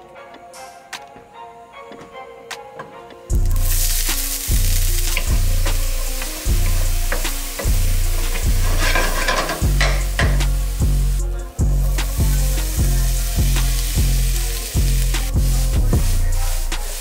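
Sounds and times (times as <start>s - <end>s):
onion sizzling in a frying pan: 3.3s - 17.0s
wooden spoon scraping a pan: 3.6s - 10.6s.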